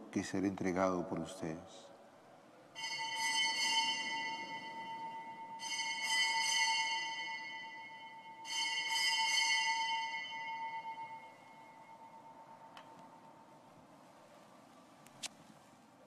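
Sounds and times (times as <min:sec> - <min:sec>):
small bells ringing: 0:02.8 - 0:13.6.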